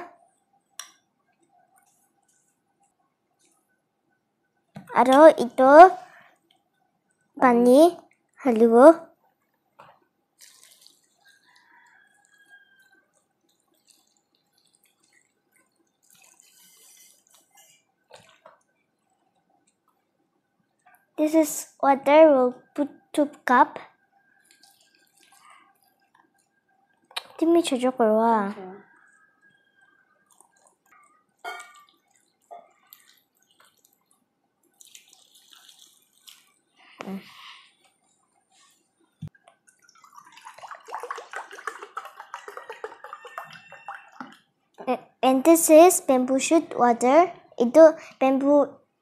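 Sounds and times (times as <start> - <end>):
water trickling from cup: 10.4 - 20.0, 24.2 - 27.4, 28.8 - 36.9, 37.7 - 44.5.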